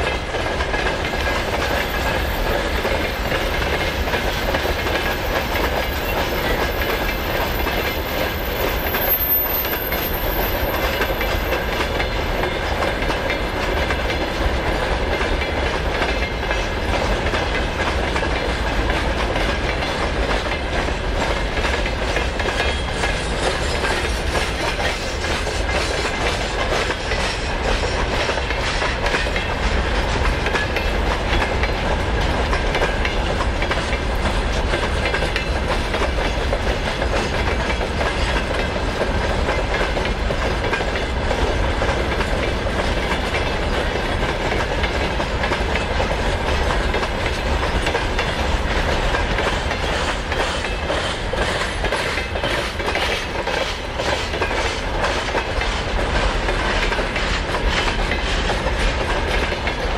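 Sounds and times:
train wheels clattering on rails: 0.0s - 59.9s.

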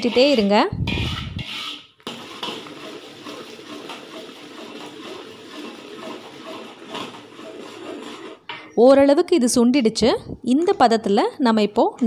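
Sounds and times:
metal spoon scraping pan: 0.0s - 8.8s
wet sloshing of stirred syrup: 1.3s - 8.5s.

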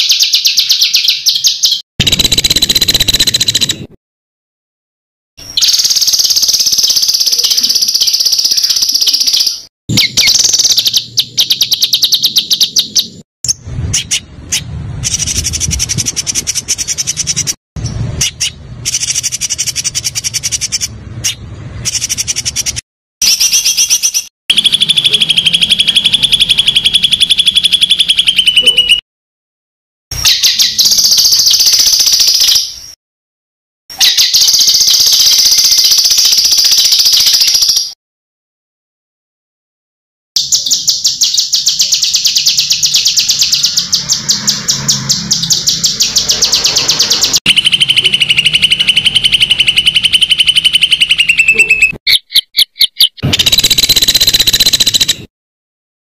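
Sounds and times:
songbird singing trills: 0.0s - 3.9s, 5.4s - 29.0s, 40.4s - 55.2s.

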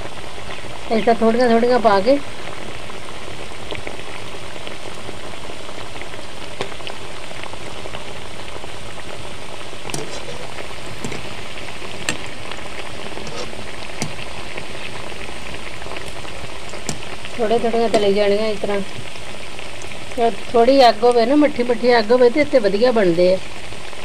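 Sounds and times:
dough deep-frying in oil: 0.0s - 24.0s
sharp clicks: 16.6s - 17.2s.

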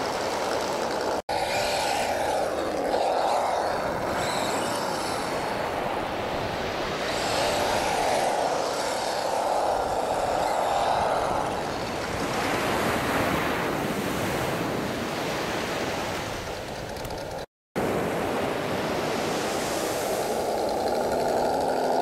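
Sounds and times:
toy truck motor whine: 0.0s - 5.8s, 7.0s - 11.8s.

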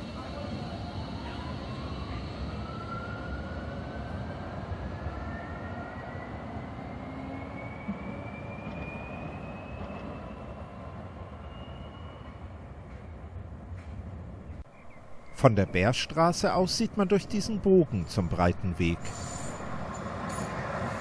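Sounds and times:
tram motor whine rising: 0.0s - 12.7s
street traffic: 0.0s - 21.0s.

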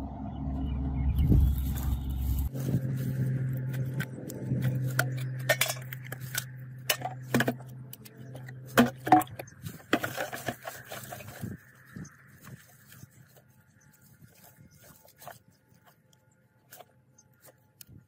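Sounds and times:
metal tools clinking: 5.0s - 7.7s.

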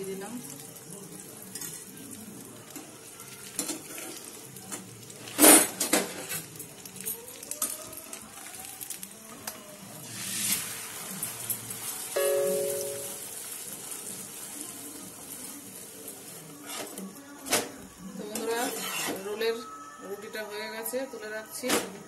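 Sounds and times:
flatbread sizzling in oil: 0.0s - 17.4s
metal spatula scraping: 18.3s - 19.3s.

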